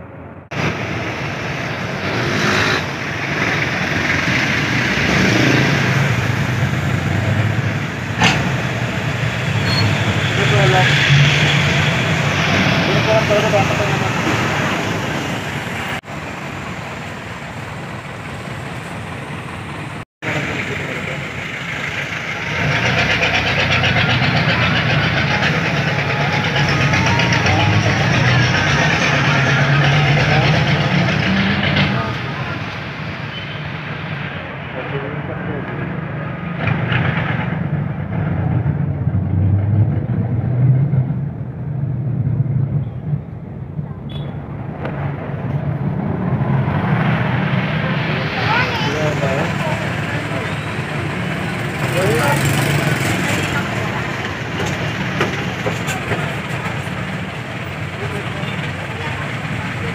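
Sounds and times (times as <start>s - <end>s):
diesel engine running: 0.0s - 59.9s
road noise: 0.0s - 59.9s
vehicle engine and cabin noise: 34.8s - 59.9s.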